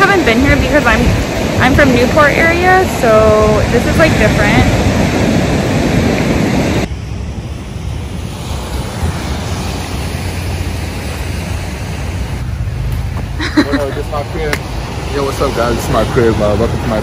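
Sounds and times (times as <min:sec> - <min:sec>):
wind on microphone: 0:00.0 - 0:12.5
ocean surf washing ashore: 0:00.0 - 0:17.0.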